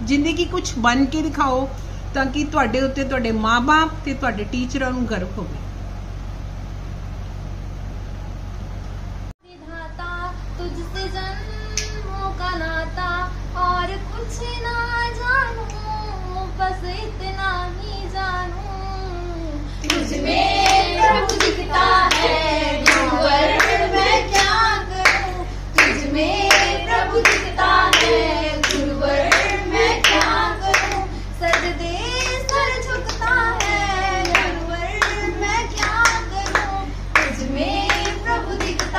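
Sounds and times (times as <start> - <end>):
girls singing together: 19.8 - 38.9
hand claps: 19.8 - 38.9.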